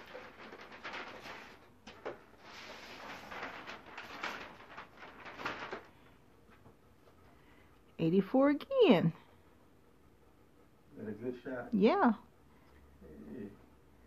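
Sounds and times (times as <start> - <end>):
wrapping paper rustling: 0.0 - 6.2.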